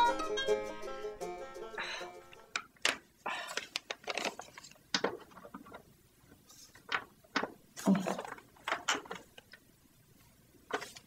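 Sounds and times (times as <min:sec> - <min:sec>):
paper and tape rustling: 0:02.8 - 0:09.6, 0:10.2 - 0:11.0.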